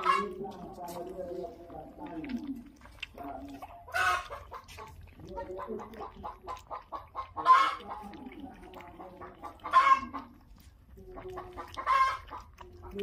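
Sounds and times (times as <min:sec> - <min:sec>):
chicken squawks: 0:00.0 - 0:00.4, 0:03.9 - 0:05.5, 0:06.4 - 0:08.0, 0:09.5 - 0:10.4, 0:11.6 - 0:12.5
chickens clucking: 0:00.0 - 0:13.0
puppies lapping milk: 0:00.0 - 0:13.0.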